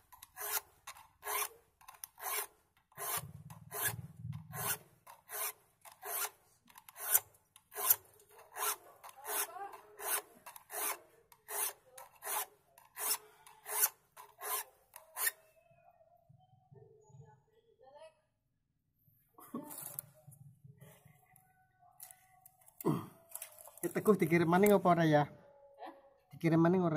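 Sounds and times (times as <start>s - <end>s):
file rasping on saw teeth: 0.1s - 15.4s.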